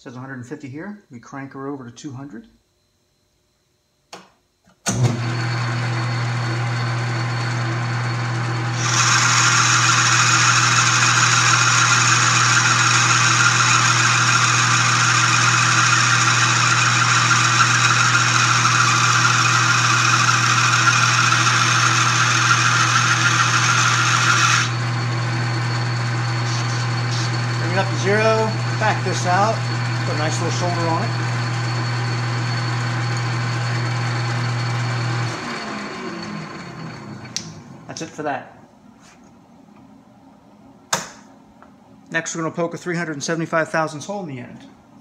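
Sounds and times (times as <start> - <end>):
metal lathe humming: 6.8 - 37.6
lathe tool cutting hiss: 8.7 - 31.5.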